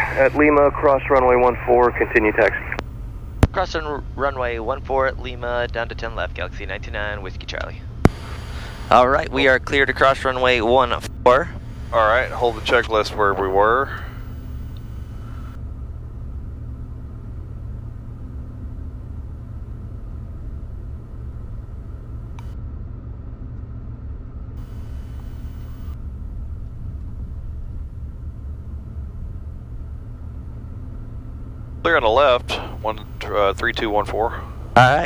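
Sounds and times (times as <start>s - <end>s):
faint steady whine: 0.0s - 35.0s
jet cockpit rumble: 0.0s - 35.0s
faint click: 22.3s - 22.6s.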